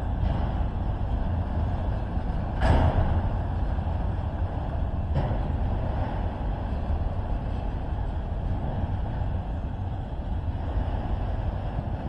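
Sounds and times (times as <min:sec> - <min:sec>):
vehicle low rumble: 0:00.0 - 0:12.0.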